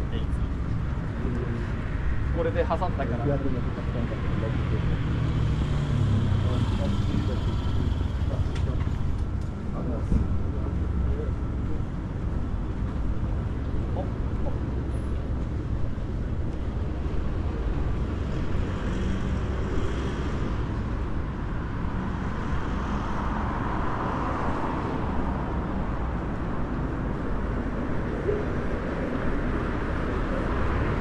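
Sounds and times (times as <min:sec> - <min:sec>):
city street traffic rumble: 0:00.0 - 0:31.0
vehicle passing by: 0:03.5 - 0:09.1.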